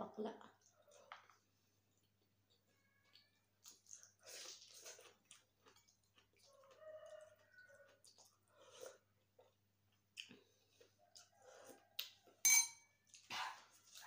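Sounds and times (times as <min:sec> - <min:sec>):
chewing and mouth noises: 0:00.5 - 0:12.4, 0:13.0 - 0:14.0.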